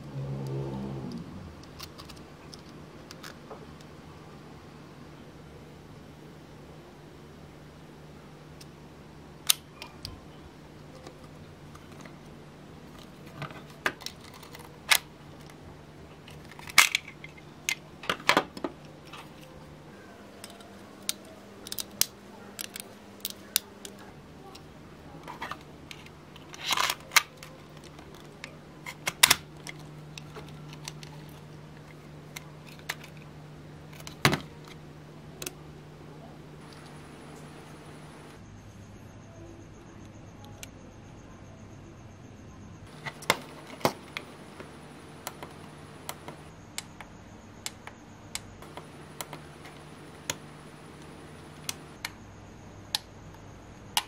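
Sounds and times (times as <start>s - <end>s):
faint steady hum: 0.0s - 54.0s
plastic clicks and rattles: 1.6s - 3.4s, 20.4s - 24.0s.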